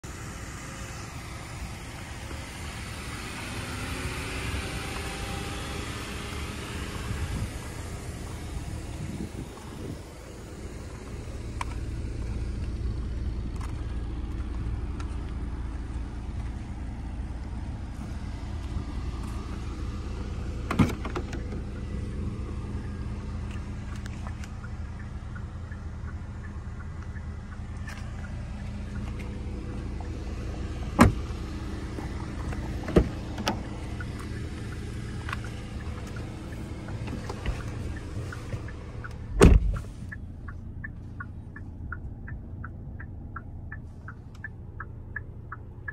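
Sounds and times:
car doors opening and shutting: 18.0 - 24.9, 27.8 - 40.2
heavy door thump: 39.4 - 39.8.

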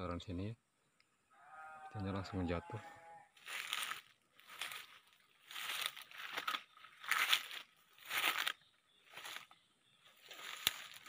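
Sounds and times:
footsteps crunching dry leaves: 3.4 - 11.0.

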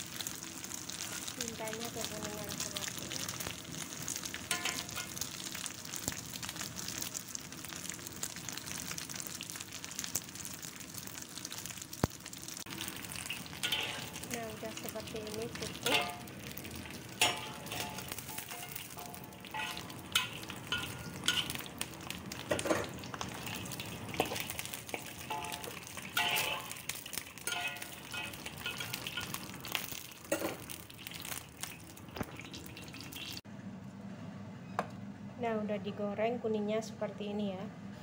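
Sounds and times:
food sizzling in hot oil: 0.0 - 33.4
metal skimmer scraping wok: 4.5 - 5.2, 12.7 - 31.4.

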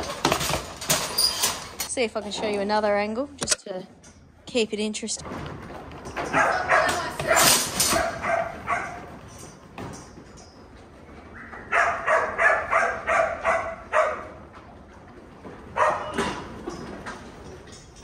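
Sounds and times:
dog barking: 6.3 - 9.1, 11.6 - 14.3, 15.8 - 16.2.

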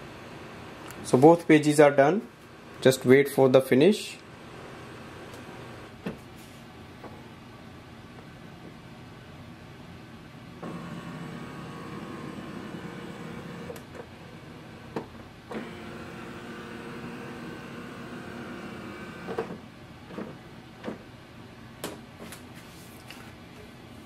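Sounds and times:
printer scanner motor humming: 10.6 - 20.2.

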